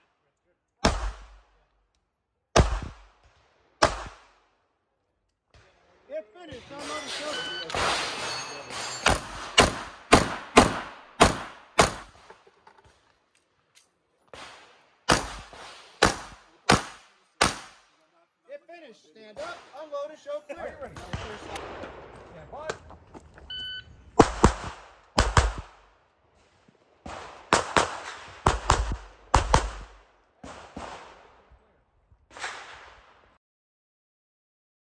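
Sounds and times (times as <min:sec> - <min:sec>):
pistol shots with echo: 0:00.8 - 0:01.6, 0:02.6 - 0:04.4, 0:06.8 - 0:12.2, 0:14.3 - 0:17.8, 0:24.2 - 0:25.8, 0:27.0 - 0:31.4.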